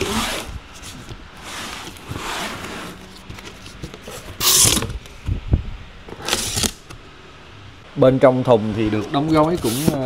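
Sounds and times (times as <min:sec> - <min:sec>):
cardboard scraping and rustling: 0:00.0 - 0:05.3, 0:08.8 - 0:10.0.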